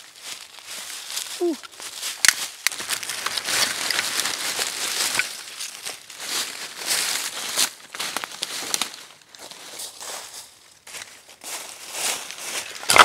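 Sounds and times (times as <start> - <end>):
dry leaves and twigs crunching: 0.0 - 13.0
twigs snapping: 1.6 - 6.0.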